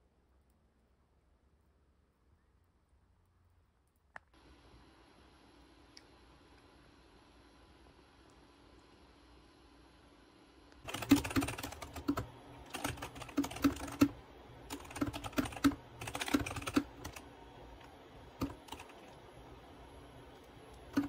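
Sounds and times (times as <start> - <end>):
mechanical keyboard typing: 10.8 - 17.3, 18.3 - 19.2, 20.8 - 21.0.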